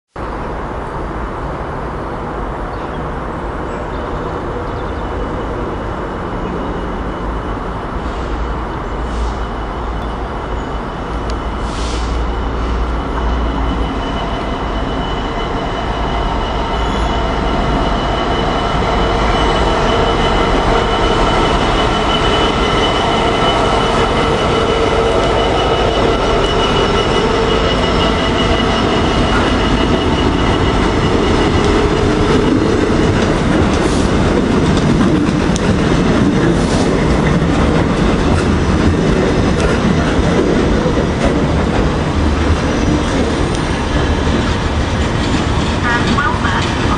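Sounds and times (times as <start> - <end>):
diesel locomotive engine passing: 0.2 - 46.9.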